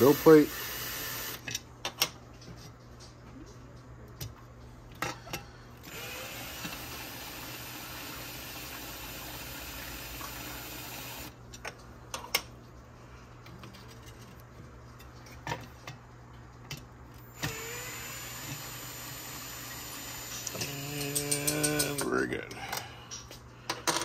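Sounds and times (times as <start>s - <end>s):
power drill motor spinning: 0.0s - 1.4s, 5.8s - 11.4s, 17.2s - 22.0s.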